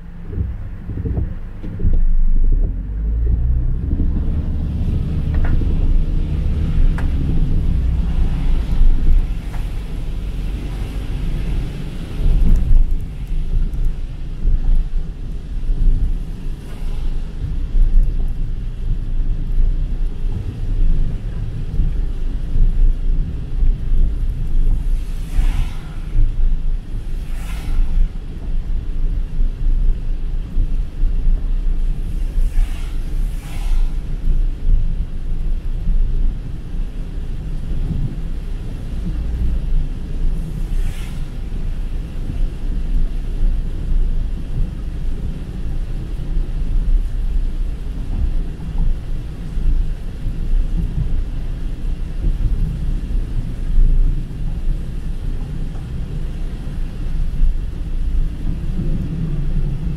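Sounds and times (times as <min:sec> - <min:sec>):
car driving on wet road: 0:00.0 - 0:59.9
rain hissing: 0:01.8 - 0:59.9
tyre spray swishing: 0:24.8 - 0:28.5, 0:32.0 - 0:34.4.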